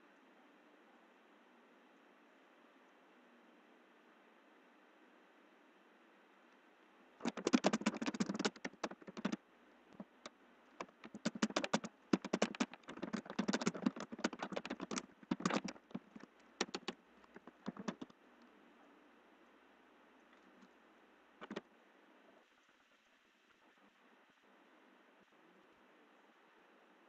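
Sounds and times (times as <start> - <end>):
typing on computer keyboard: 7.2 - 9.4, 10.0 - 18.1, 21.4 - 21.6.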